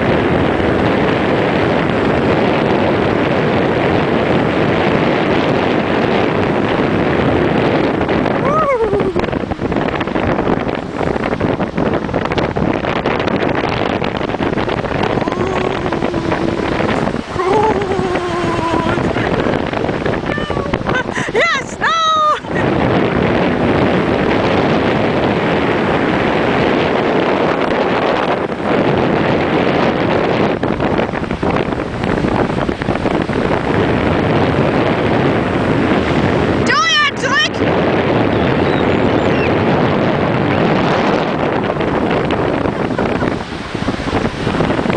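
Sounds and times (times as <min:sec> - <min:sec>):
heavy surf breaking: 0:00.0 - 0:44.9
wind buffeting microphone: 0:00.0 - 0:44.9
person's wavering drawn-out voice: 0:08.4 - 0:09.3, 0:15.0 - 0:19.5, 0:20.2 - 0:22.6.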